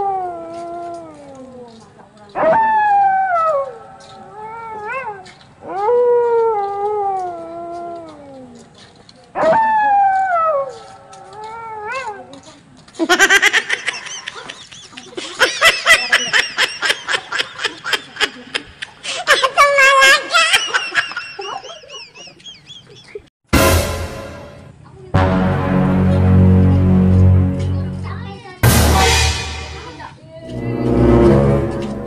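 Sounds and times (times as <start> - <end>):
rapid shrill laughter: 13.1 - 23.2.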